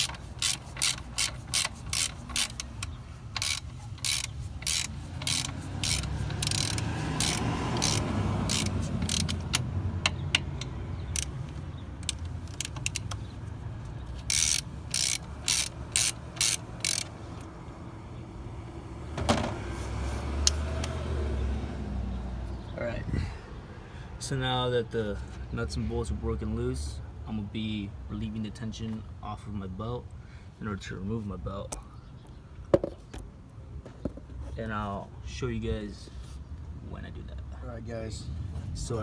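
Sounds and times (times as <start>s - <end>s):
socket ratchet clicking: 0.0s - 13.2s, 14.2s - 17.2s.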